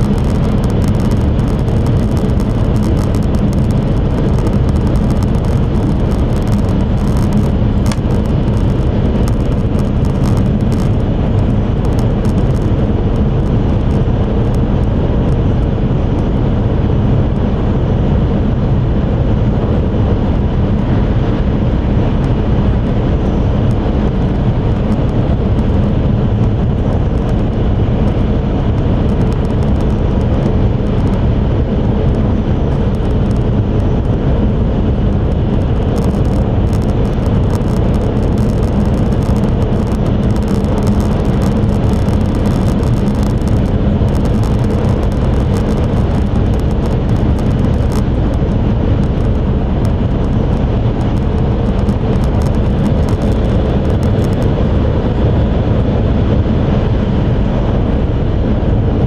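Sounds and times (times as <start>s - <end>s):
faint high crackling ticks: 0.0s - 14.6s, 23.7s - 31.3s, 35.6s - 54.5s.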